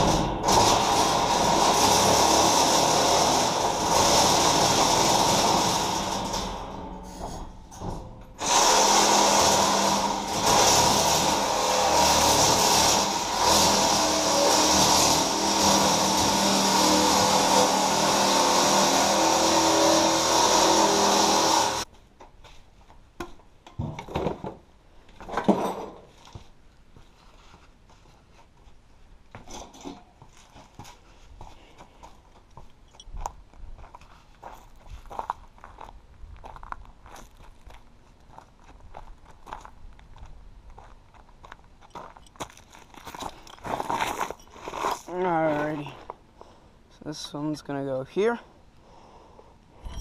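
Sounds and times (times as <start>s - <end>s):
power tool grinding steel: 0.0s - 21.9s.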